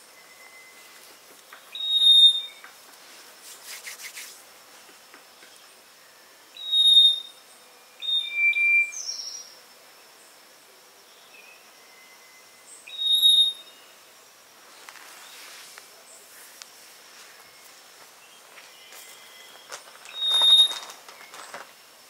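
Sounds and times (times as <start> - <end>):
bird whistling: 1.7 - 2.6, 6.6 - 7.3, 8.0 - 9.4, 12.9 - 13.7, 19.0 - 21.5.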